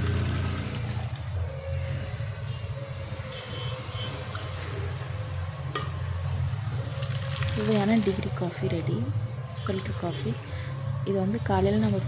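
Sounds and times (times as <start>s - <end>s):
coffee splashing into metal cup: 6.9s - 8.0s.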